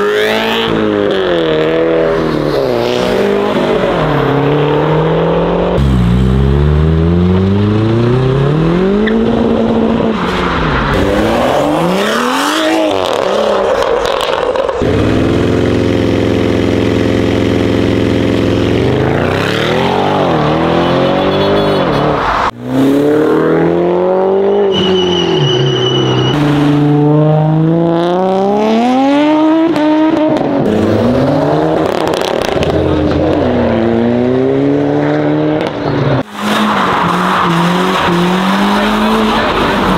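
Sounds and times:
car engines revving and accelerating: 0.0s - 39.9s.

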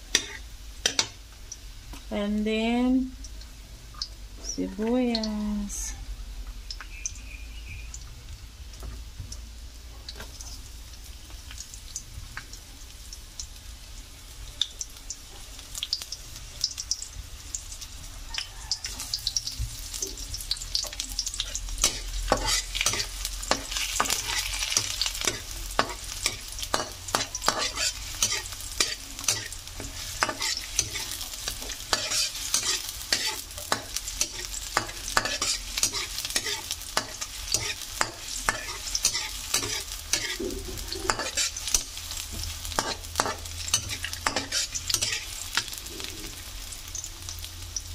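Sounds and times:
metal spatula scraping wok: 0.0s - 1.1s, 21.3s - 46.4s
onion sizzling in oil: 0.0s - 47.9s.

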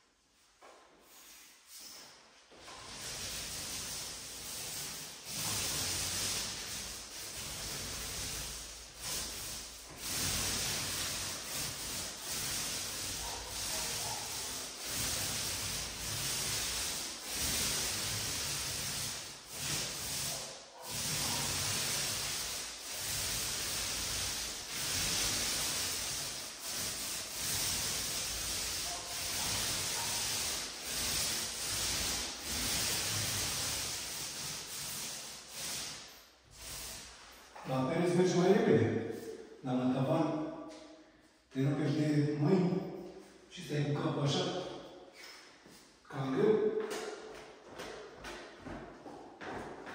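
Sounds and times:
paint roller wet rasp: 1.0s - 38.5s.

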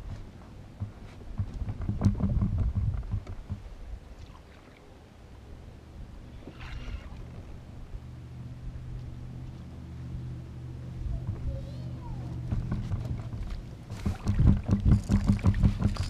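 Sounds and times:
steady low hum: 0.0s - 16.0s
knocks on plastic kayak: 0.8s - 3.6s, 12.5s - 16.0s.

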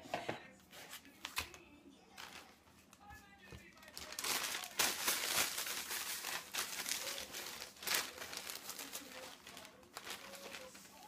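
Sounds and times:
plastic bag crinkling: 3.7s - 11.0s.

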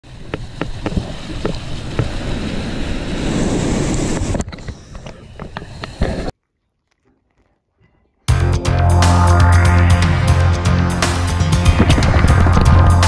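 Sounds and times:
wind on microphone: 11.6s - 13.0s.

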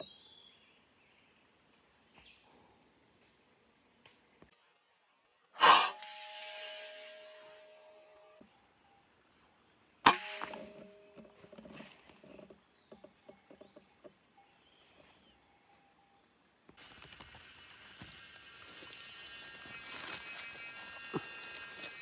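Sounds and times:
rifle shot: 10.1s - 11.1s.

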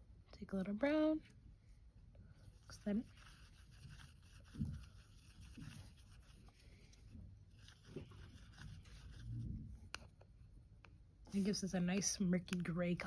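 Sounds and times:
paintbrush tapping and rubbing on palette: 3.0s - 10.3s.

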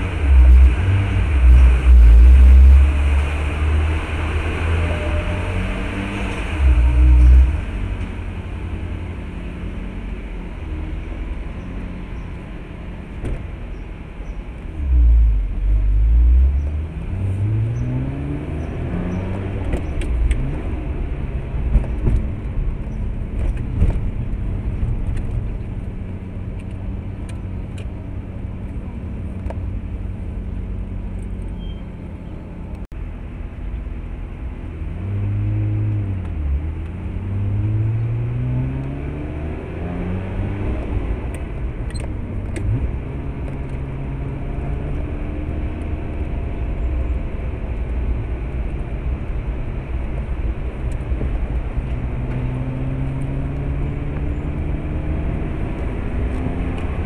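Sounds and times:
low rumble: 0.0s - 8.9s
highway traffic: 0.0s - 57.0s.

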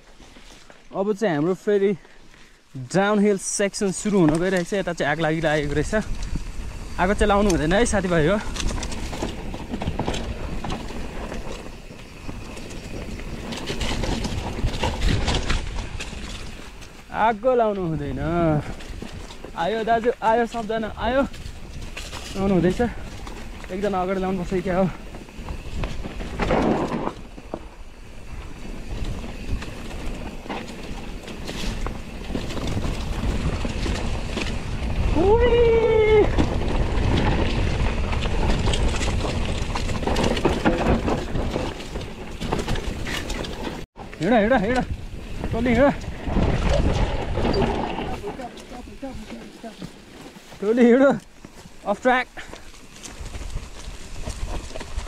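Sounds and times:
tyres rumbling on trail: 0.0s - 55.0s
wind buffeting microphone: 3.7s - 55.0s
chain and frame rattling: 45.5s - 51.1s.

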